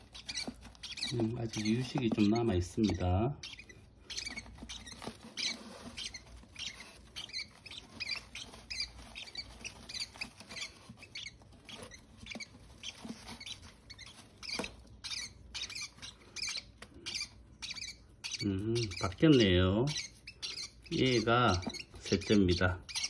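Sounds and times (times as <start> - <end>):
parrot chicks peeping: 0.0 - 23.0
rustle of wood-shaving bedding: 4.3 - 14.4.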